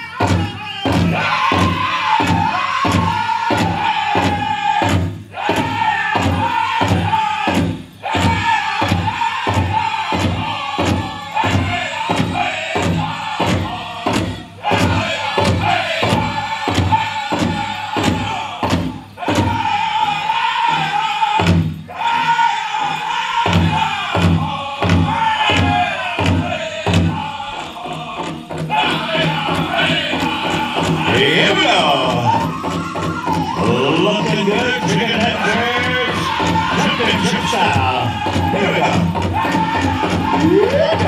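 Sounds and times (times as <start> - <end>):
large drum steady beat: 0.0 - 22.1, 22.8 - 41.0
men singing in high voices: 0.0 - 41.0.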